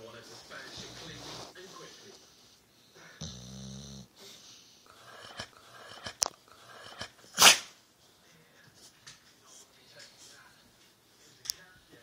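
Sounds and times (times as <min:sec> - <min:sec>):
dog snuffling: 0:00.0 - 0:02.6
dog sneezing: 0:06.9 - 0:07.8.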